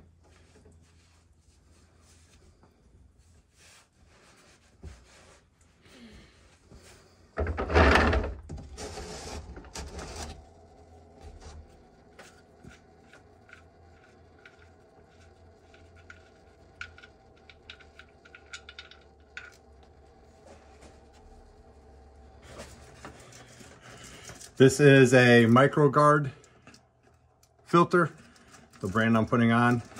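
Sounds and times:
loud rubbing scraping: 0:07.6 - 0:10.5.

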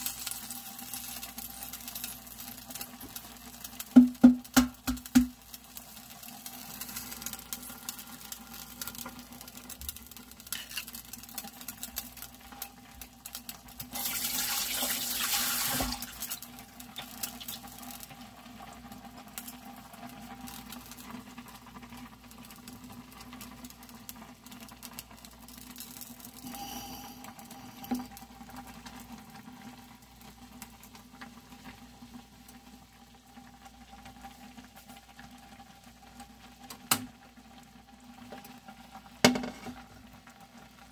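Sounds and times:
broth boiling and bubbling: 0:00.0 - 0:40.9.

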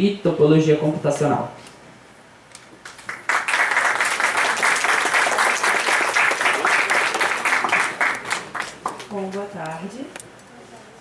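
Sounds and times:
audience applauding: 0:02.8 - 0:09.4.

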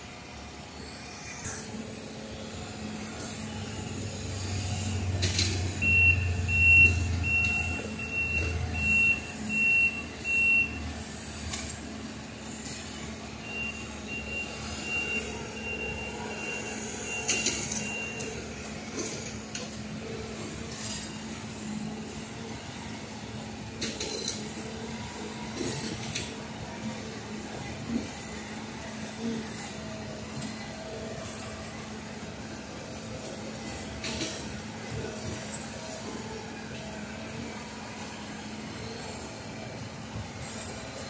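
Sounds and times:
rail machine engine running: 0:00.0 - 0:41.0
backup alarm beeping: 0:05.8 - 0:10.8.

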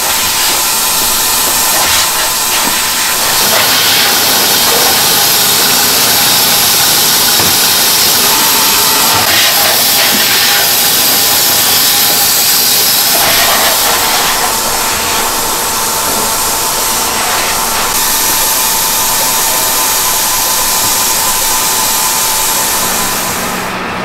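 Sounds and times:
factory machinery hissing: 0:00.0 - 0:24.0.

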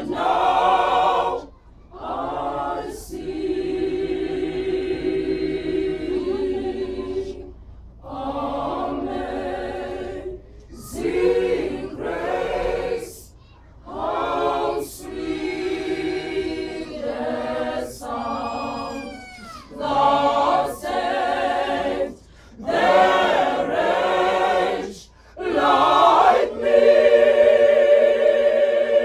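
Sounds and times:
mixed choir singing in harmony: 0:00.0 - 0:29.0.

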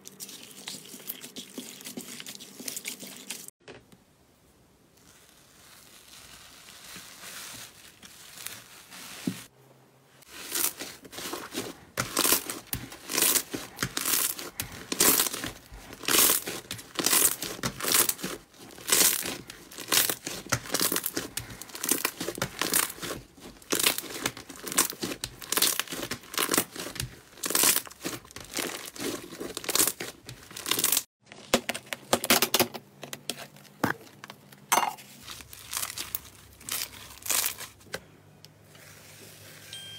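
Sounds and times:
slime crackling and popping: 0:10.3 - 0:31.1.

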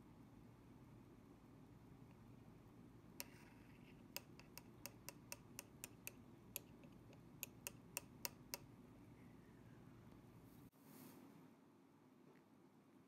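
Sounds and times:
metal tool tapping glass jar: 0:04.2 - 0:06.8, 0:07.4 - 0:08.6.

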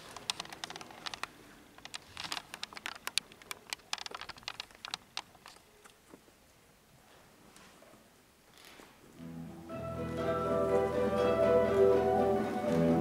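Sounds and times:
sharp clicks: 0:00.0 - 0:06.0.

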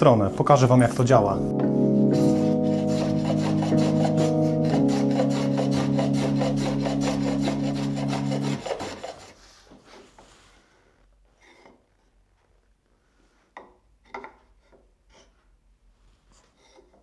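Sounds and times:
background music with chords: 0:00.0 - 0:08.6
hand tool rasping wood: 0:02.2 - 0:10.1.

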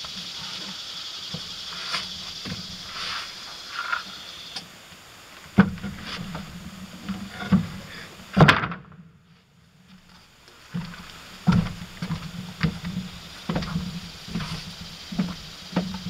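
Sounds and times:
high hiss: 0:00.0 - 0:08.4, 0:10.1 - 0:16.0
irregular knocks and bumps: 0:10.7 - 0:16.0.

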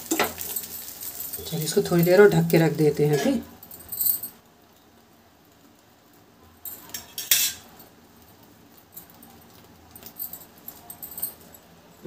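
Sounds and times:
metal pan clinking and scraping: 0:06.8 - 0:07.7.

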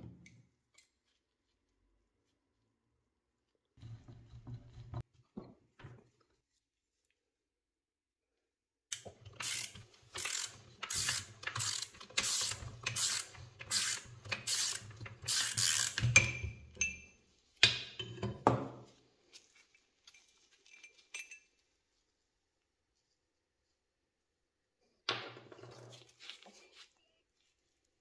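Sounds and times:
ratchet wrench clicking: 0:08.9 - 0:16.1
faint metal clinks: 0:20.0 - 0:21.7.

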